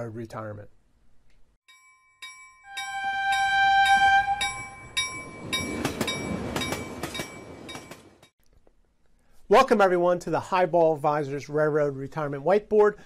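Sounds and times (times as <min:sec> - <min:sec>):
railroad bell ringing: 0:01.7 - 0:08.3
passing train rumble and clatter: 0:03.3 - 0:08.3.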